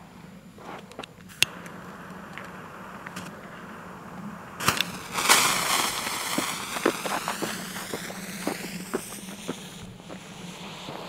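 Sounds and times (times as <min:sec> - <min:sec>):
firecracker fuse hissing: 0:00.3 - 0:11.0
firecracker sizzling and crackling: 0:00.6 - 0:11.0
footsteps: 0:04.6 - 0:11.0.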